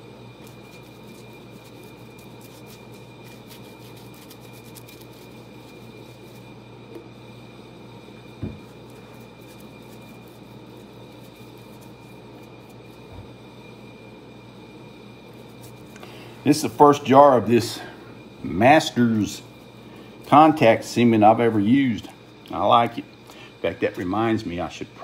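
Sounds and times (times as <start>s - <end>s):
faint high whine: 0.0s - 25.0s
steady hum: 0.0s - 25.0s
glue brush strokes: 0.4s - 6.6s, 8.6s - 13.1s.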